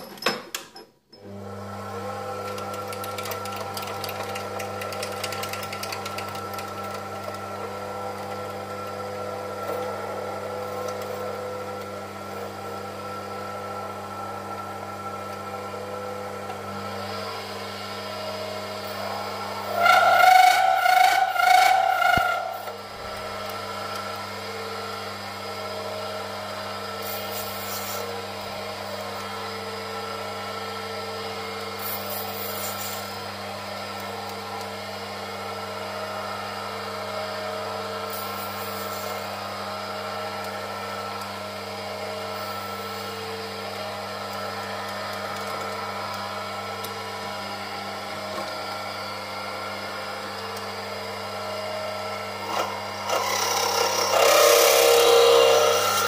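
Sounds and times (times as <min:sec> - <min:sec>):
lathe motor humming: 0:01.3 - 0:56.0
lathe tool scraping metal: 0:18.8 - 0:23.5, 0:52.4 - 0:56.0.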